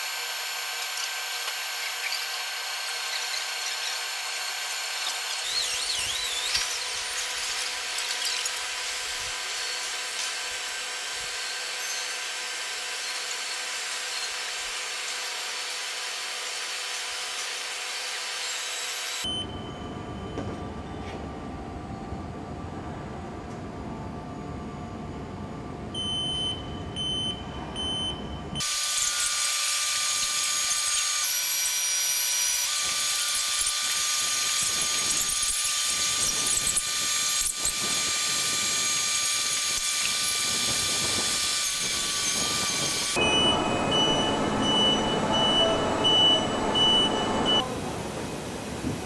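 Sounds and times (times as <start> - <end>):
machine hiss with high whines: 0.0 - 20.3, 28.6 - 49.0
crane warning beeper: 19.2 - 21.0, 25.9 - 28.7, 43.2 - 47.7.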